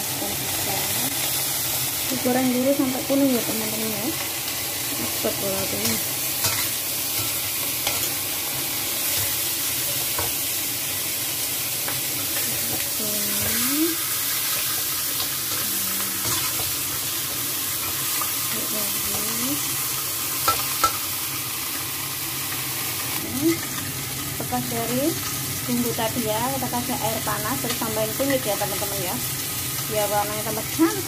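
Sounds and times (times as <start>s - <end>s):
chicken sizzling in oil: 0.0s - 31.0s
stirring and scraping in wok: 5.8s - 8.2s, 16.2s - 16.8s.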